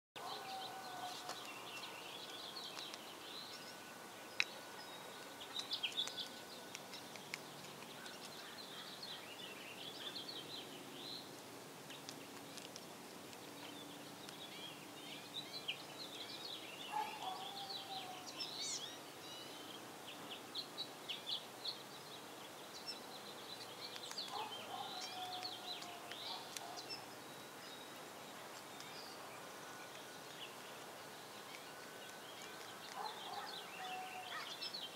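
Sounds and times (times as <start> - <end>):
lower falling bird calls: 0.2 - 11.3, 22.5 - 34.9
small birds chirping: 0.2 - 34.9.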